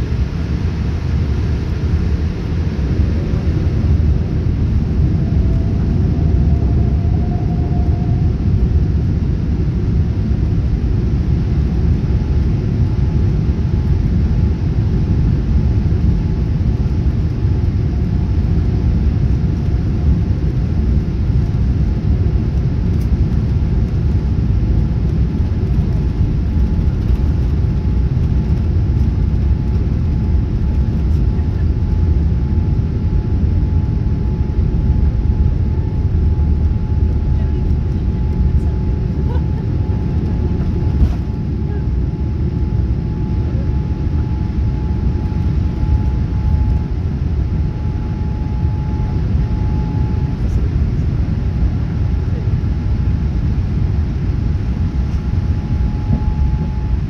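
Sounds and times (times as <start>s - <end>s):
faint rising whine: 0.0s - 10.8s, 25.3s - 51.9s, 54.0s - 57.0s
jet engines and wheels rumbling: 0.0s - 57.0s.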